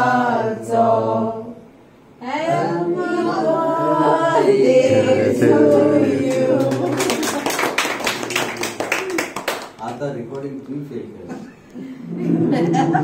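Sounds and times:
group singing a birthday song: 0.0s - 8.0s
hand clapping: 6.3s - 10.4s.

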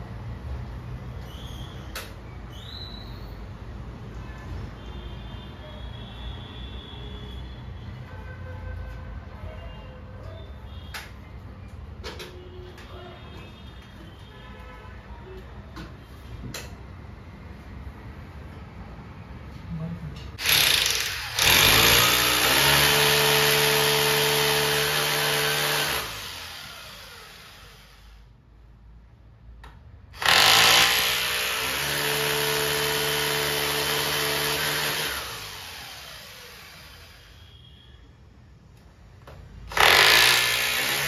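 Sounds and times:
electric drill boring into wall: 20.4s - 28.2s, 30.2s - 37.4s, 39.7s - 41.0s.

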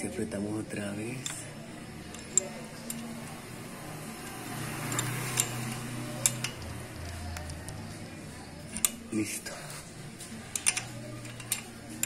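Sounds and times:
wrench metal clicks: 1.2s - 3.3s, 4.8s - 7.8s, 8.7s - 9.1s, 10.4s - 12.0s.

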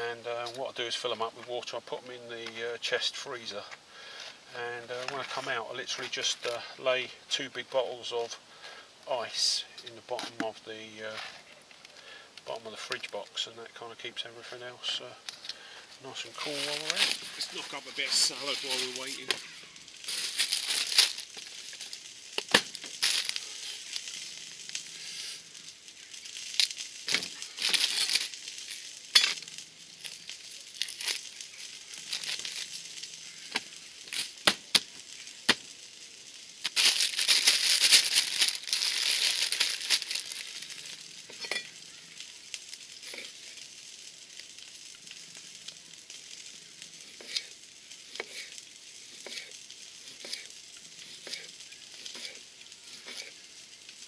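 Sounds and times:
sausages sizzling in oil: 0.0s - 54.0s
rustling: 14.9s - 54.0s.

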